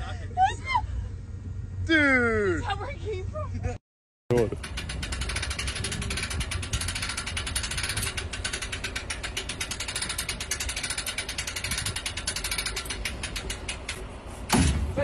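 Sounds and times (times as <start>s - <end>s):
winch ratchet clicking: 4.3s - 14.1s.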